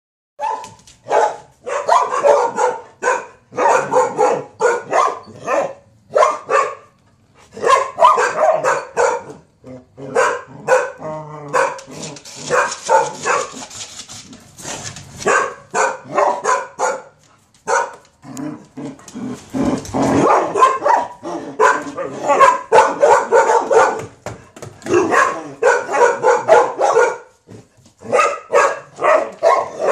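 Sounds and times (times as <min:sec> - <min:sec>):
dog barking: 0:00.4 - 0:07.0, 0:07.6 - 0:13.6, 0:15.2 - 0:18.0, 0:20.1 - 0:24.2, 0:24.9 - 0:27.4, 0:28.0 - 0:29.9.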